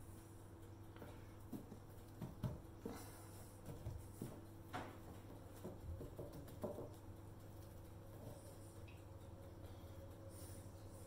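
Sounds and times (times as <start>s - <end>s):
chickpeas knocking: 3.7s - 7.1s.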